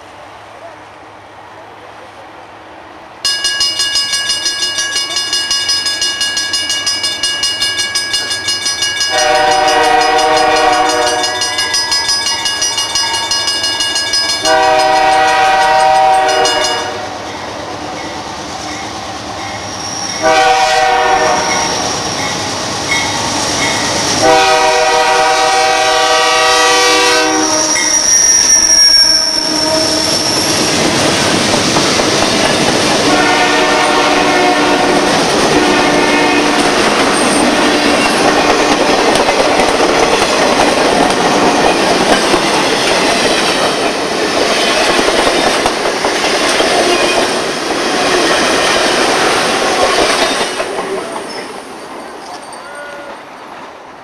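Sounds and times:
train wheels rolling: 0:03.2 - 0:54.0
bell ringing quickly: 0:03.3 - 0:15.1
locomotive air horn blasts: 0:09.1 - 0:11.5, 0:14.4 - 0:17.2, 0:20.2 - 0:22.1, 0:24.2 - 0:28.2, 0:29.0 - 0:30.5, 0:33.0 - 0:36.9
wheel squeal: 0:19.5 - 0:20.2, 0:27.4 - 0:30.8.

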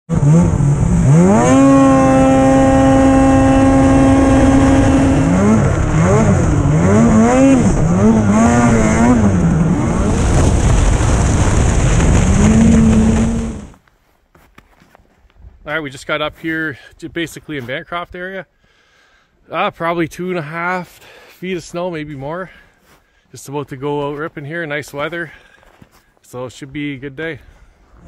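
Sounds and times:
snowmobile engine revving: 0:00.1 - 0:13.8.

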